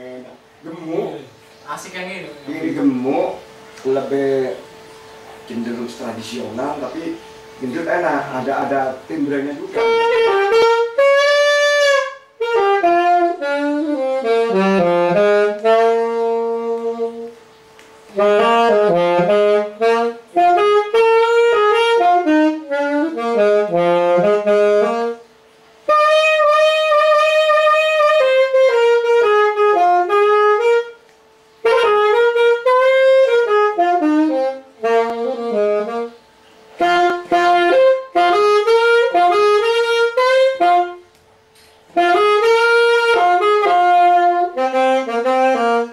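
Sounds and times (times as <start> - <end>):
solo saxophone melody: 0.0 - 45.9.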